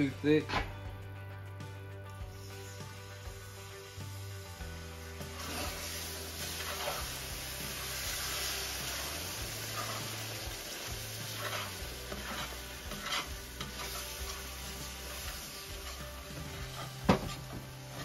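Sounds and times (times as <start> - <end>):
gravy sizzling in skillet: 2.1 - 18.0
wooden spatula scraping pan: 5.4 - 7.2, 9.7 - 10.4, 11.2 - 18.0.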